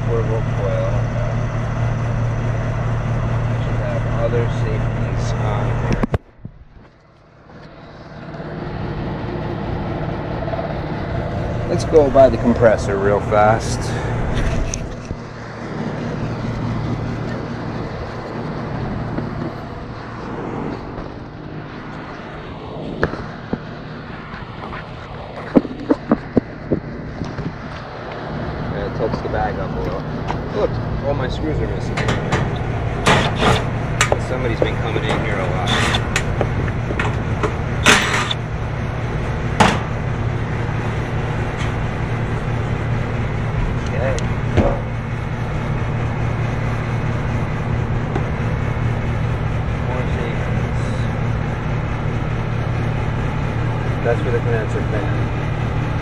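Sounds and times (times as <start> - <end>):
air conditioner humming: 0.0 - 24.2, 27.9 - 56.0
metal panel scraping: 31.8 - 38.4
metal panel clack: 31.9 - 38.4.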